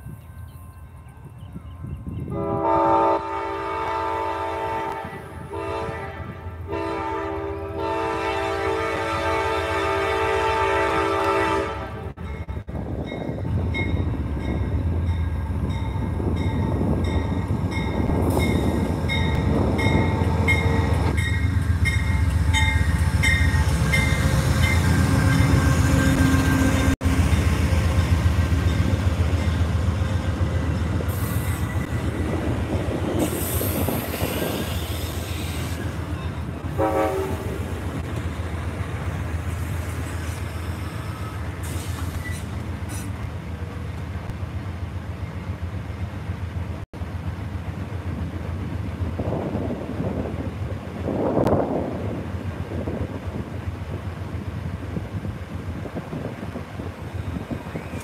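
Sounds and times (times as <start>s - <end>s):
train rumbling past: 0.0s - 58.0s
train horn: 2.3s - 12.2s, 36.6s - 37.8s
locomotive bell ringing: 12.2s - 27.6s
brake hiss and squeal: 33.2s - 36.0s, 39.9s - 43.2s.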